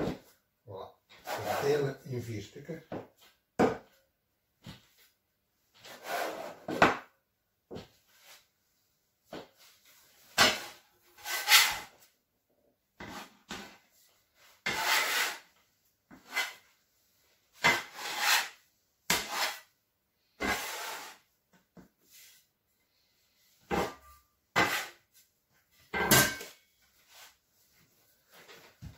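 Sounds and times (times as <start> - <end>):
metal scraper cutting dough: 10.4 - 11.9, 14.6 - 15.5, 17.6 - 19.7, 24.6 - 25.0.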